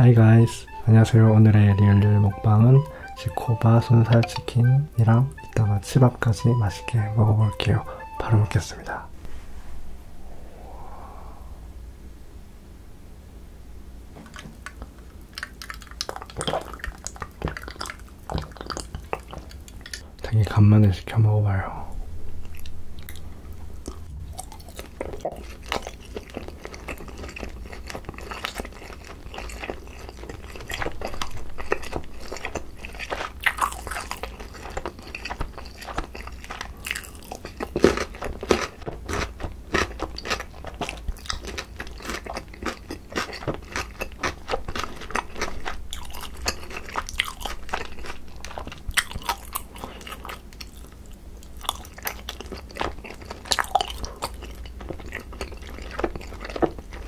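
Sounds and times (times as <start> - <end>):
close chewing and biting: 14.2 - 20.0, 23.8 - 57.0.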